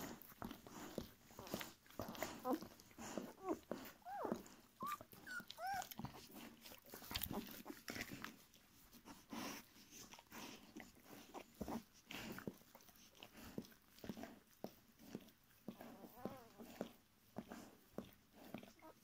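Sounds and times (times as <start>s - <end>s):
rustling on a blanket: 0.0s - 19.0s
puppies whimpering squeaks: 2.1s - 6.0s.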